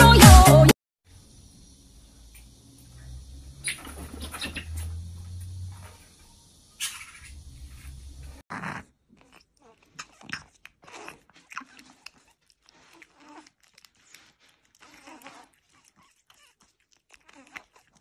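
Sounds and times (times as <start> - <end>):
cat chewing wet food: 9.1 - 18.0.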